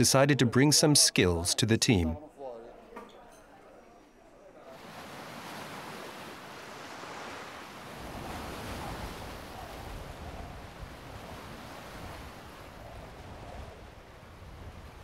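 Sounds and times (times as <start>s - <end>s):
surf on rocky shore: 4.7s - 15.0s
wind buffeting microphone: 7.9s - 15.0s.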